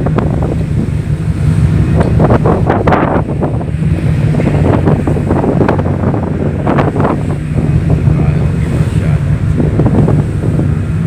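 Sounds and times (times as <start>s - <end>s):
ship engines droning: 0.0s - 11.0s
wind buffeting microphone: 0.0s - 11.0s.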